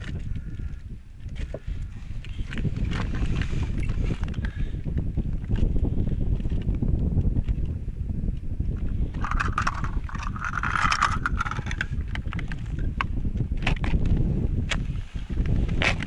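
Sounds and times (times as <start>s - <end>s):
wind buffeting microphone: 0.0s - 16.0s
scraping sound: 9.1s - 11.9s.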